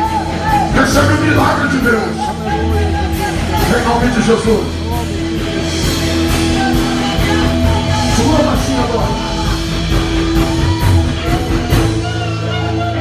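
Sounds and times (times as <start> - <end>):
guitar: 0.0 - 13.0
worship music: 0.0 - 13.0
voices singing: 5.2 - 13.0.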